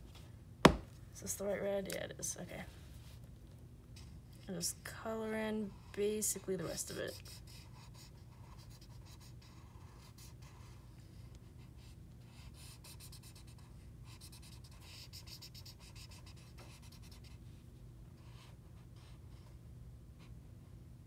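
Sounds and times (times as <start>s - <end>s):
electric fan humming: 0.0s - 7.8s
marker scratching on paper: 6.6s - 10.8s, 11.8s - 17.4s.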